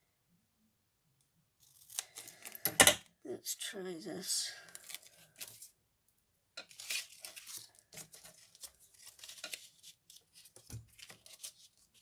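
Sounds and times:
paper rustling and crinkling: 1.6 - 2.6, 4.7 - 5.8, 6.6 - 12.0.

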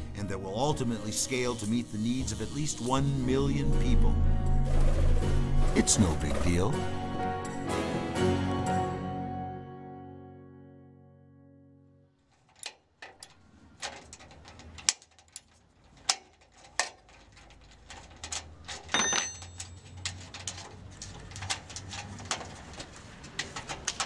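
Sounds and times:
hand tools clinking on metal: 12.3 - 24.0
ringing metallic clang: 18.8 - 19.8.

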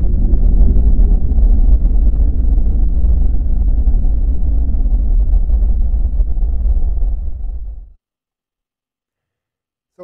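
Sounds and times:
deep rumble sound effect: 0.0 - 8.0.

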